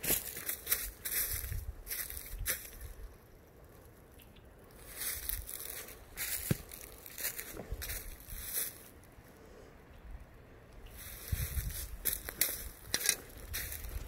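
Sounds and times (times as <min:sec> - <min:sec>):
footsteps through dry leaves: 0:00.0 - 0:03.1, 0:04.7 - 0:09.1, 0:10.8 - 0:14.0.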